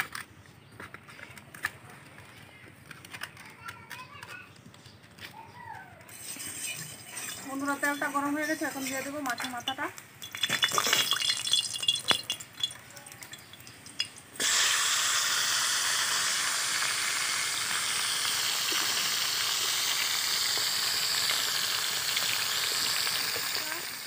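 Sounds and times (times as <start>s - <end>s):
fish frying in hot oil: 11.1s - 24.0s.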